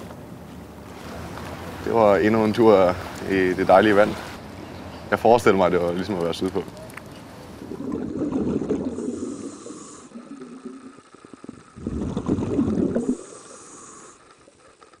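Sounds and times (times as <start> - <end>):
diver breathing through regulator: 7.8 - 14.7.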